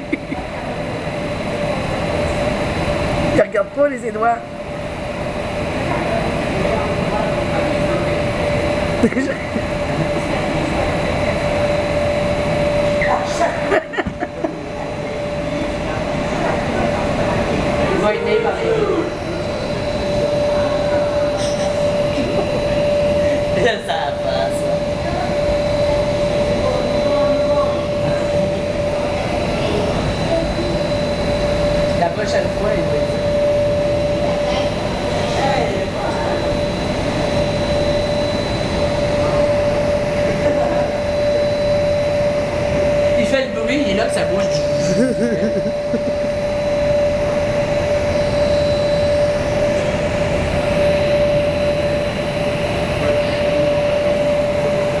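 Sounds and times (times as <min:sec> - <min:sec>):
constant hum-like tone: 0:00.0 - 0:55.0
constant whine: 0:00.0 - 0:55.0
rush of air from fans: 0:04.5 - 0:32.0.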